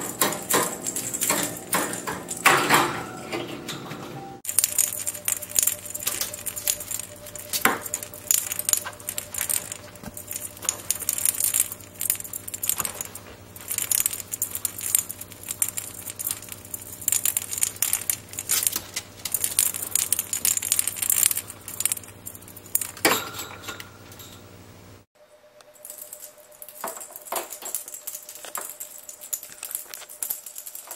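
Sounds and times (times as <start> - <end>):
ball clattering in wire cage: 0.0 - 24.5, 25.9 - 30.9.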